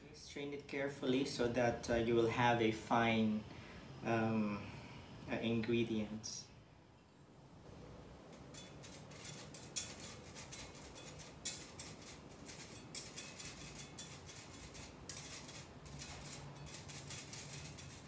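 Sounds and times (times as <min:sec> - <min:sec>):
whisk scraping mesh strainer: 0:08.3 - 0:18.0.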